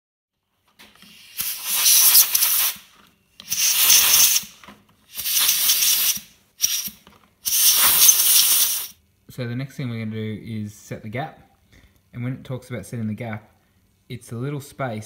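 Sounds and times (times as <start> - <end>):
compressed air blow gun hissing: 1.0 - 9.0.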